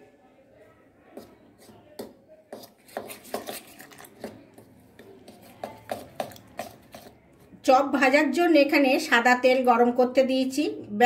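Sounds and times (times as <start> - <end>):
spoon scraping steel bowl: 1.2 - 7.5.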